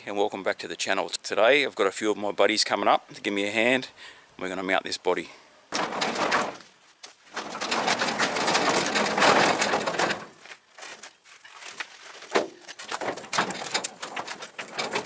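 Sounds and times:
knocks: 0:05.7 - 0:06.7
metal scraping across wooden floor: 0:05.7 - 0:06.7, 0:07.3 - 0:11.0, 0:12.3 - 0:15.0.

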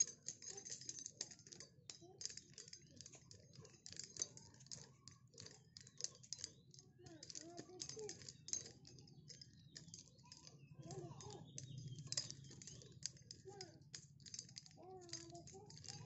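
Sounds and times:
nunchaku sticks clacking: 0:00.0 - 0:16.0.

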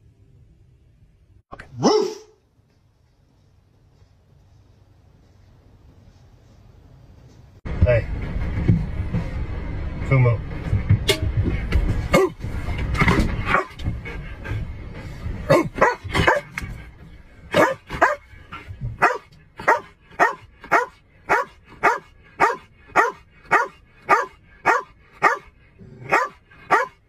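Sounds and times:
dog barking: 0:01.7 - 0:02.4, 0:12.1 - 0:12.4, 0:13.5 - 0:13.8, 0:15.5 - 0:16.6, 0:17.5 - 0:18.3, 0:19.0 - 0:27.0
low rumble: 0:07.7 - 0:26.7.

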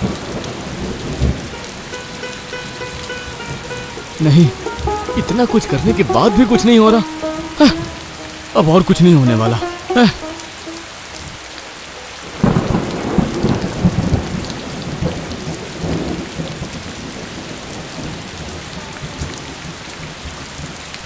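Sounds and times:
heavy rain: 0:00.0 - 0:21.0
thunder rumbling: 0:12.3 - 0:18.1.

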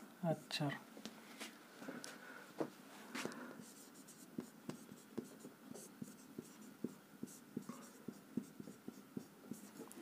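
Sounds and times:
marker pen writing on whiteboard: 0:03.6 - 0:10.0.

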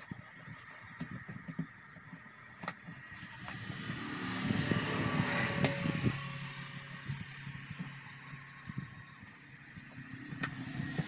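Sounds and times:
vehicle passing by: 0:03.0 - 0:11.0.

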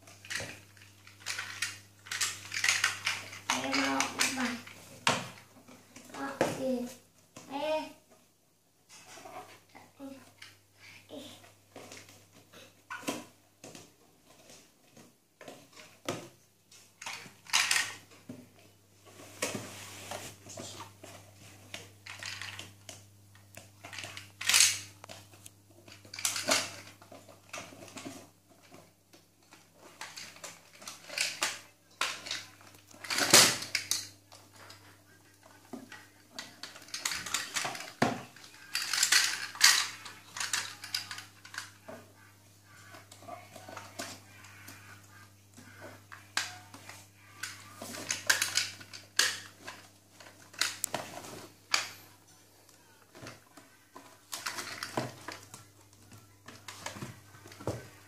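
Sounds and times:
faint steady hum: 0:00.0 - 0:58.0
plastic toy parts clicking: 0:00.2 - 0:04.6, 0:17.0 - 0:18.0, 0:23.8 - 0:24.9, 0:36.6 - 0:41.8, 0:47.4 - 0:51.0.

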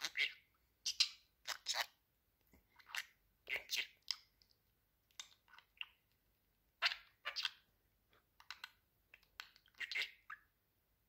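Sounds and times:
budgerigar chattering: 0:00.0 - 0:01.9, 0:09.7 - 0:10.4.

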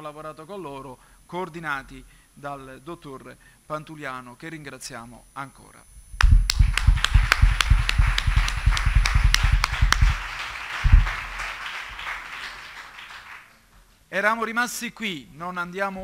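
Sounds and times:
audience applause: 0:06.5 - 0:13.5.

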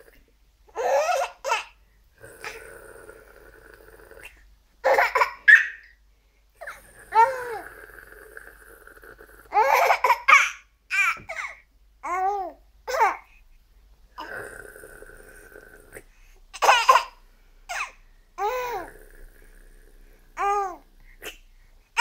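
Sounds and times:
baby laughing: 0:04.8 - 0:05.9, 0:09.5 - 0:12.2.

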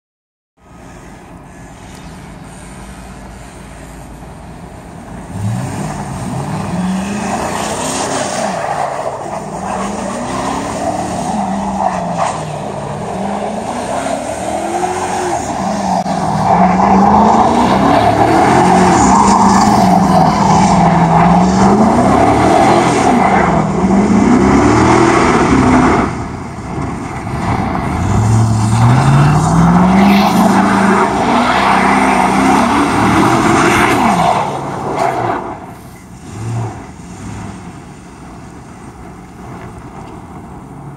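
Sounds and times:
truck engine revving: 0:05.2 - 0:35.6.

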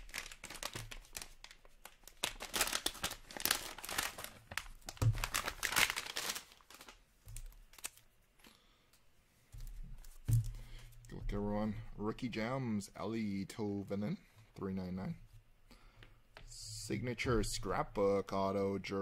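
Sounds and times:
foil pouch crinkling: 0:00.0 - 0:08.1.

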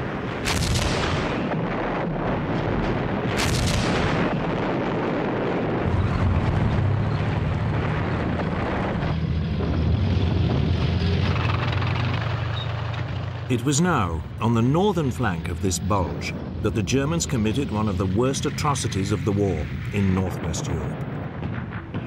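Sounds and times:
artillery gun blasts: 0:00.0 - 0:06.8
tank engine rumbling: 0:00.0 - 0:22.0.

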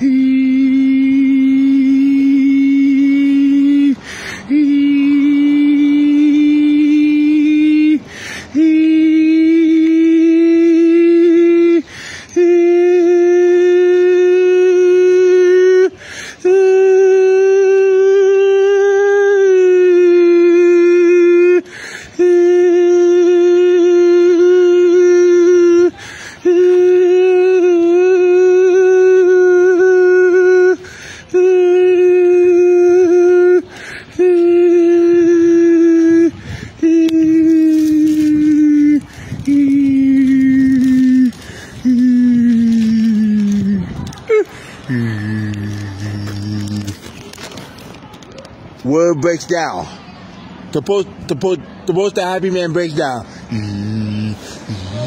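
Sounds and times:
man holding wordless notes: 0:00.0 - 0:48.2
quick breaths: 0:04.0 - 0:04.6, 0:08.0 - 0:08.6, 0:11.8 - 0:12.4, 0:15.9 - 0:16.5, 0:21.6 - 0:22.2, 0:25.9 - 0:26.5, 0:30.8 - 0:31.4, 0:33.6 - 0:34.2, 0:36.3 - 0:36.9, 0:37.6 - 0:39.5, 0:40.6 - 0:48.1, 0:53.2 - 0:55.0.

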